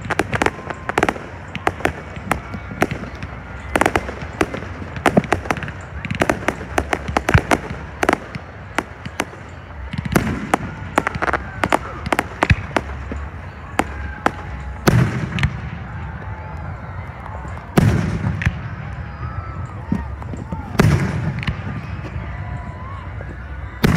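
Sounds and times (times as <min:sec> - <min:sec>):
fireworks bangs: 0:00.0 - 0:23.9.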